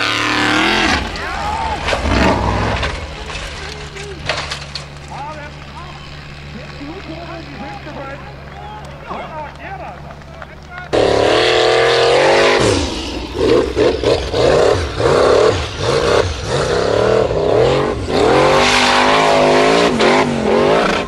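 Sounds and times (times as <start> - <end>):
buggy engine revving hard: 0.0 - 4.4, 10.8 - 21.0.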